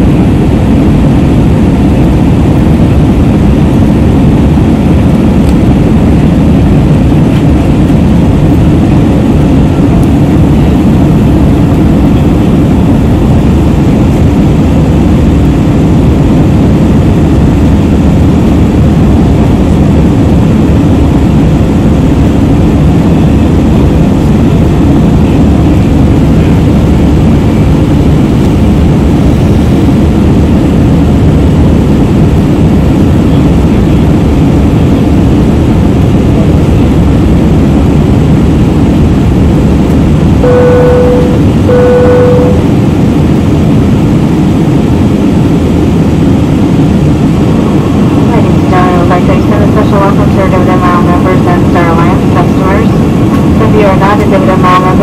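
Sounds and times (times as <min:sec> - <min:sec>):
jet engines roaring: 0:00.0 - 0:55.0
rushing air: 0:35.9 - 0:48.7.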